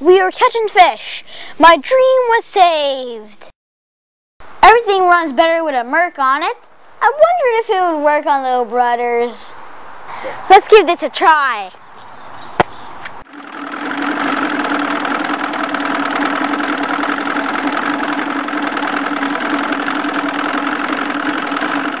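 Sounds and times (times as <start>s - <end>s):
outboard motor running: 13.2s - 22.0s.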